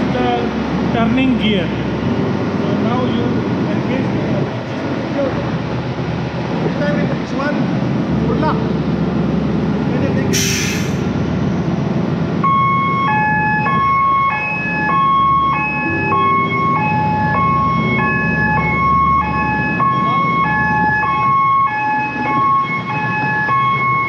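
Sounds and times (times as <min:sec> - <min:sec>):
two-tone alarm sounder: 0:12.4 - 0:24.0.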